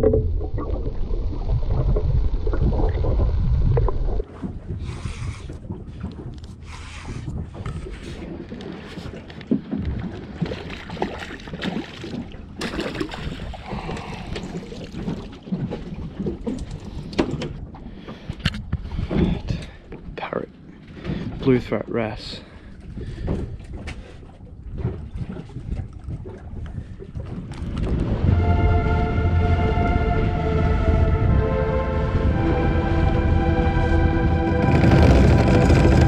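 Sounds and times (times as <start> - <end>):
loud low rumble: 0.0 - 4.9, 27.8 - 36.0.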